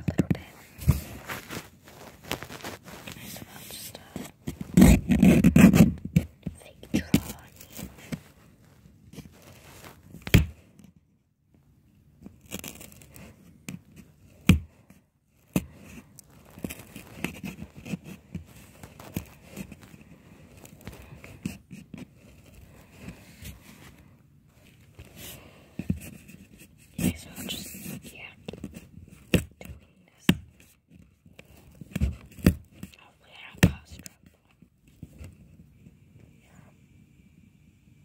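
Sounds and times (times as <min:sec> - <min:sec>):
blanket rustling: 0:00.5 - 0:04.8, 0:07.5 - 0:10.2, 0:16.3 - 0:17.8, 0:18.4 - 0:21.2
fingers scraping cardboard: 0:04.0 - 0:06.5, 0:12.3 - 0:23.9, 0:25.0 - 0:32.9.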